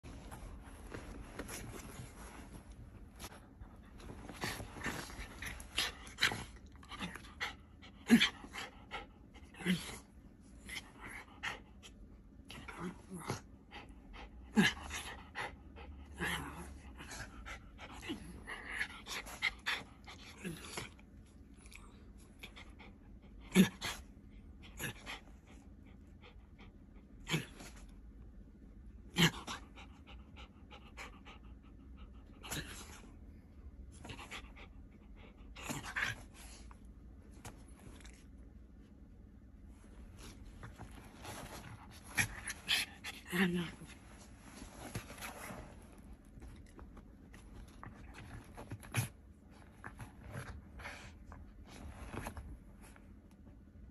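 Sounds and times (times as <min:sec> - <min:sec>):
bedding rustling: 0:00.0 - 0:06.5, 0:39.7 - 0:43.0
dog panting and snuffling: 0:43.9 - 0:52.5.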